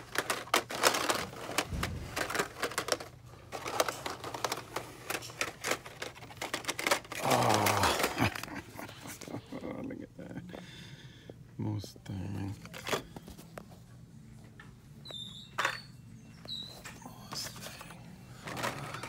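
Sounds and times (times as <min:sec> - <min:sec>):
plastic packages clicking and clattering: 0:00.0 - 0:09.7, 0:12.4 - 0:13.5, 0:17.3 - 0:19.0.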